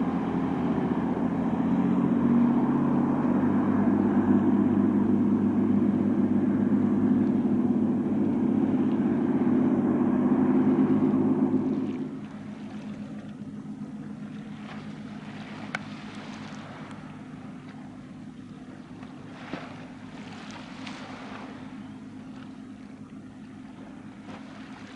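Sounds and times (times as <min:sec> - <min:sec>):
boat engine hum: 0:00.0 - 0:24.9
wind: 0:00.0 - 0:24.9.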